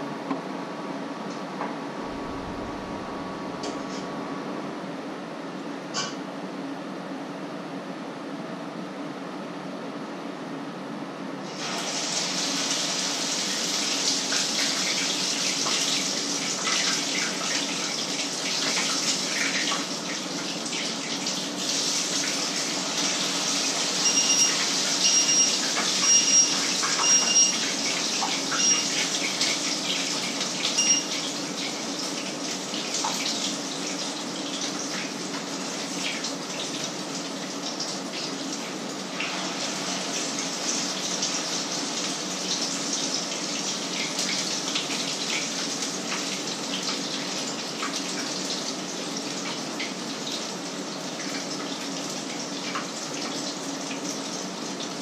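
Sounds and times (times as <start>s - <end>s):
food sizzling in a frying pan: 11.5s - 54.7s
short electronic beeps: 24.0s - 27.6s, 28.6s - 28.9s, 30.8s - 31.1s.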